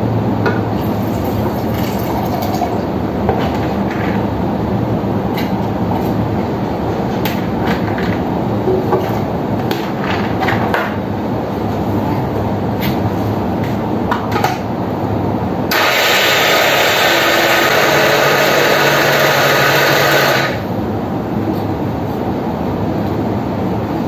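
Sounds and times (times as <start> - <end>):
blender running: 15.7 - 20.7
steady low hum: 16.4 - 24.0.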